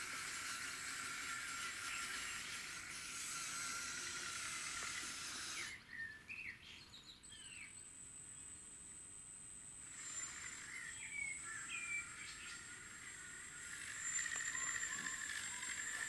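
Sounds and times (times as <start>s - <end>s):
electric motors whirring: 0.0s - 5.8s, 7.7s - 16.0s
thin steady high tone: 7.2s - 16.0s
birds chirping: 9.9s - 16.0s.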